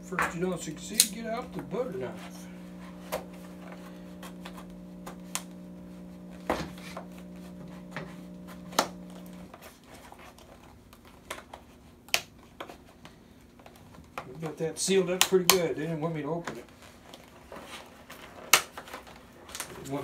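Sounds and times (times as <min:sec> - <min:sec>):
low room hum: 0:00.0 - 0:09.6.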